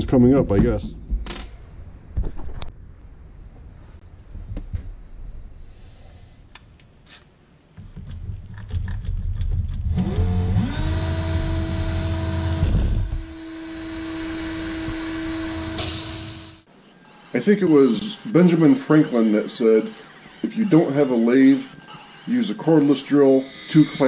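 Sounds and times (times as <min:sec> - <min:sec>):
drill motor whine: 0:09.9 - 0:24.0.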